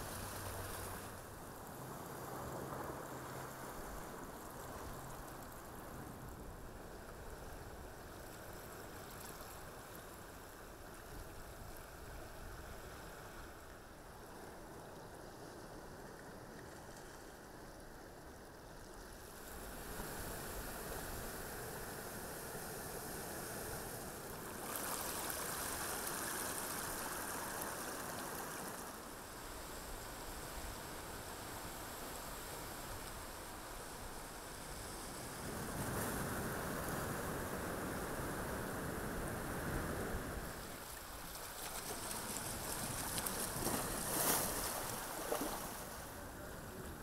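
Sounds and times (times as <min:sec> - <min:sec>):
surf washing over rocks: 0:00.0 - 0:16.2, 0:18.8 - 0:47.0
seawater washing over rocks: 0:24.2 - 0:29.1, 0:40.4 - 0:46.4.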